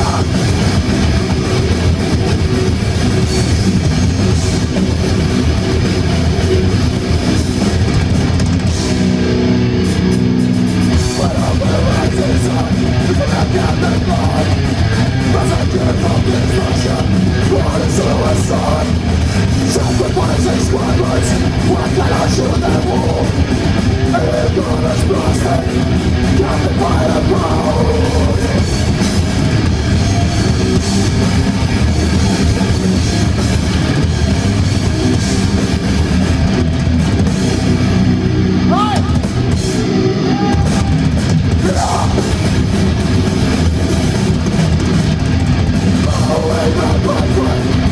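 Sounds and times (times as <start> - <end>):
bass guitar: 0.0 - 47.9
distorted electric guitars: 0.0 - 47.9
pounding drums: 0.0 - 47.9
growled vocals: 11.1 - 19.0, 19.7 - 28.7.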